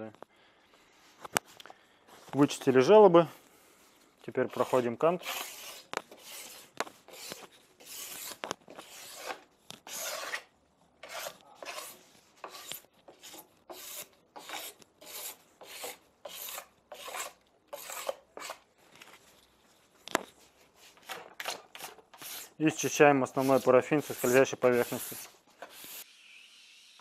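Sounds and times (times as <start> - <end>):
wax scraper scraping ski: 4.4 - 18.7, 20.8 - 27.0.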